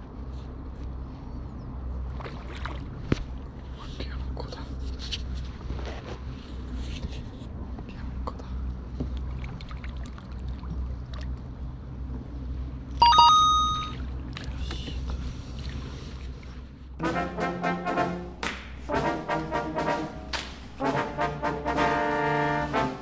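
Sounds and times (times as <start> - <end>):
bell-like chime: 13.0 - 14.0.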